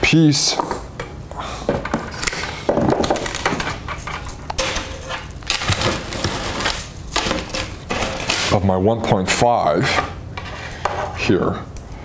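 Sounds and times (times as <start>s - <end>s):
metal wire and tools rattling: 3.0s - 8.6s.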